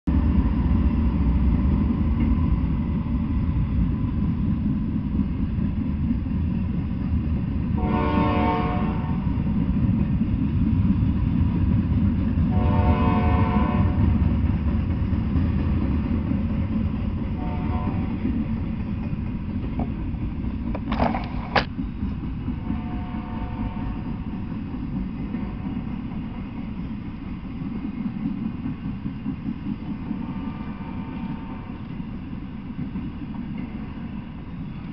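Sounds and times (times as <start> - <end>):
train wheels rumbling on rail: 0.1 - 34.9
train horn blasts: 7.8 - 9.4, 12.5 - 14.2, 17.4 - 18.2, 22.6 - 24.1, 30.1 - 31.8.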